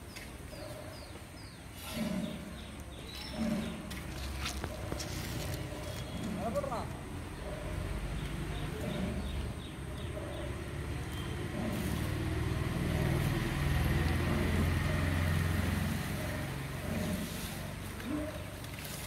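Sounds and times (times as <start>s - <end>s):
vehicle engine running: 7.5s - 19.0s.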